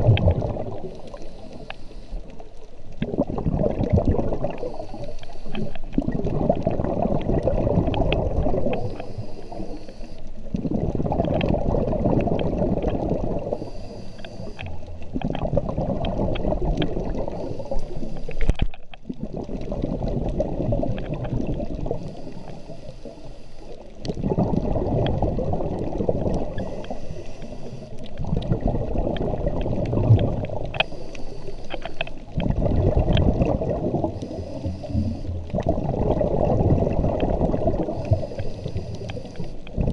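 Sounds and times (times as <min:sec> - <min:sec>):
exhaled bubbles gurgling underwater: 0:00.0 - 0:39.9
regulator hissing inhale: 0:00.9 - 0:02.4, 0:04.6 - 0:05.9, 0:08.6 - 0:10.4, 0:13.5 - 0:14.8, 0:17.3 - 0:18.6, 0:21.9 - 0:23.9, 0:26.5 - 0:28.1, 0:30.8 - 0:32.2, 0:34.1 - 0:35.4, 0:37.9 - 0:39.7.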